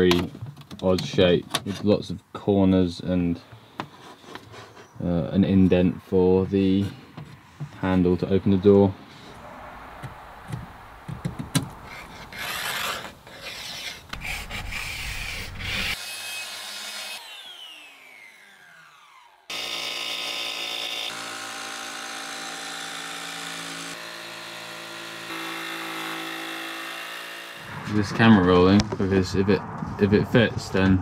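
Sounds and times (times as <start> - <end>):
jigsaw cutting plywood: 11.9 - 27.6
power saw spinning down: 15.6 - 21.5.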